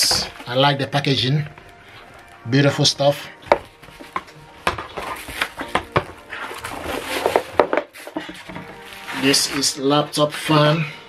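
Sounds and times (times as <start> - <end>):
plastic wrapping crinkling: 0.0 - 10.4
cardboard box being handled: 3.6 - 9.7.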